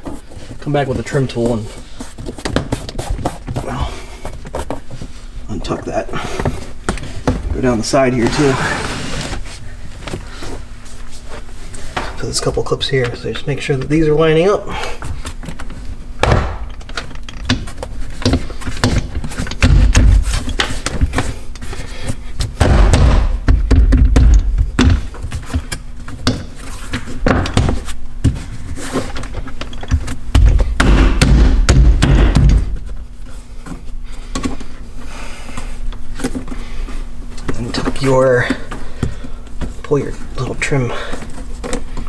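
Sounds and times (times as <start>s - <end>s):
repeated thumping: 16.2s - 16.7s, 17.4s - 21.3s, 22.4s - 26.5s, 29.9s - 33.0s.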